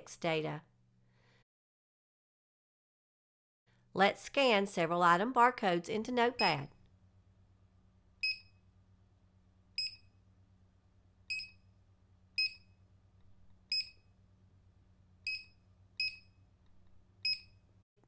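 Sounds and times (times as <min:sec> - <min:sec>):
barcode scanner beeping: 0:11.3 - 0:11.6, 0:12.4 - 0:12.7, 0:13.7 - 0:14.0, 0:15.3 - 0:16.3, 0:17.2 - 0:17.6.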